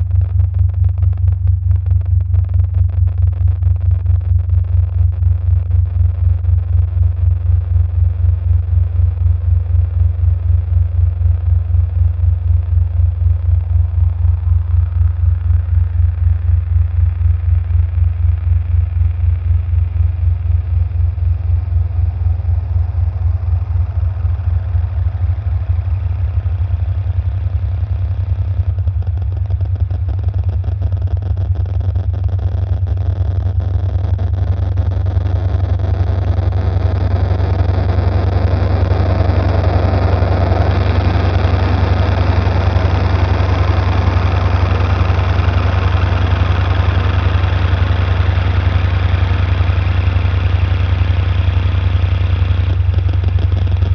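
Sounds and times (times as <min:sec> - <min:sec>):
pulsing low bass hum: 0:00.0 - 0:53.9.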